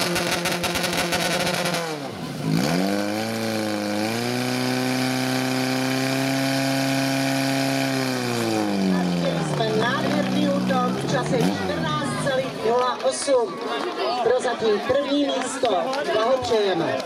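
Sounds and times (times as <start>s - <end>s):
pump engine running at high revs: 0.0s - 12.6s.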